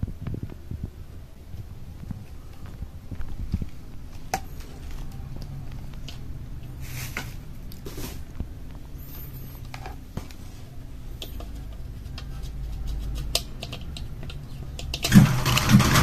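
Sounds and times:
steady low hum: 0.0 - 16.0
light clicks and taps: 11.2 - 15.1.

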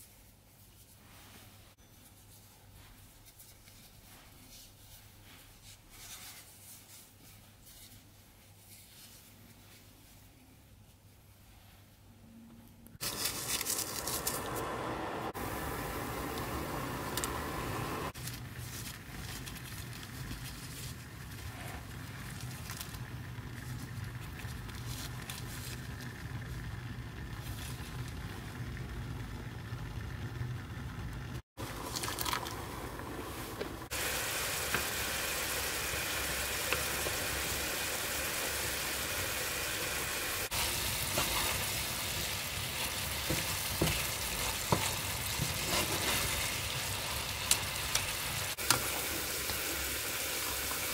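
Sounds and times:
wooden spatula scraping: 13.0 - 14.8, 39.9 - 48.7
sauce sizzling in a frying pan: 33.9 - 50.9.

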